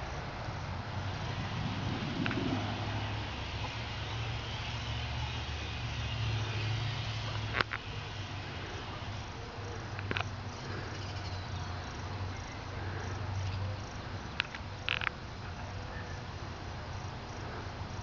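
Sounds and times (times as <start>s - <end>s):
diesel train engine idling: 0.8s - 11.0s.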